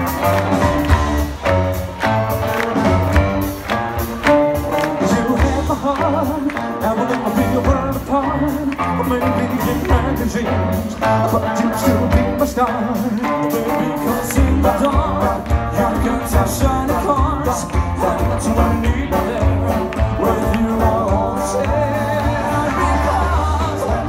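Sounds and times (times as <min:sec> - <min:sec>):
rockabilly band playing live: 0:00.0 - 0:24.0
male vocals singing: 0:04.9 - 0:24.0.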